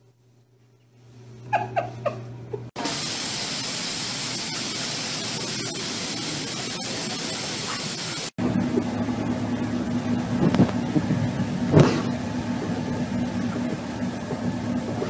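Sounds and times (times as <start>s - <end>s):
loud steady hiss: 2.8s - 8.4s.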